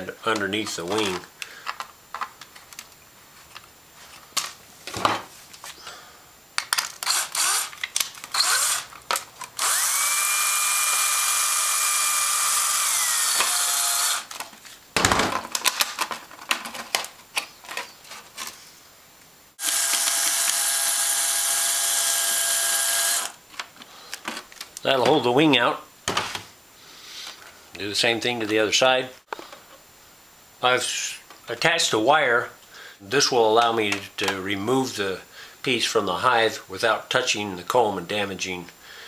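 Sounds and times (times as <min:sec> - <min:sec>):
power drill driving a screw: 0:07.0 - 0:08.9, 0:09.6 - 0:14.4, 0:19.6 - 0:23.4.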